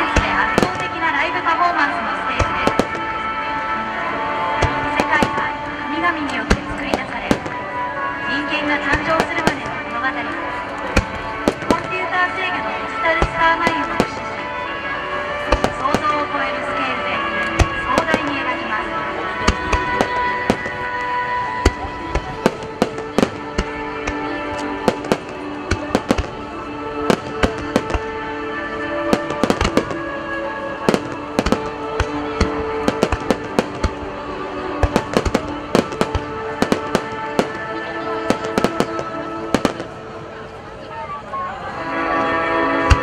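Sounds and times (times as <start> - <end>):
fireworks bursting with sharp cracks: 0.0 - 40.5, 42.8 - 43.0
music playing: 0.0 - 43.0.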